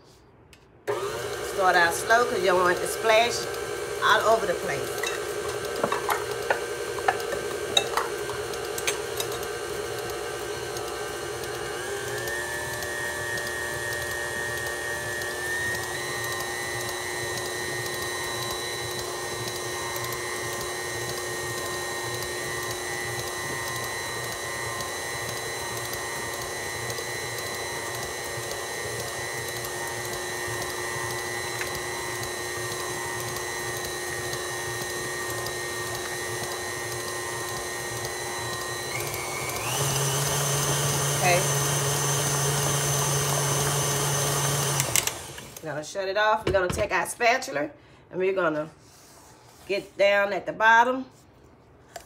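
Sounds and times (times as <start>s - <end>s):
stand mixer motor whine: 0.9s - 45.7s.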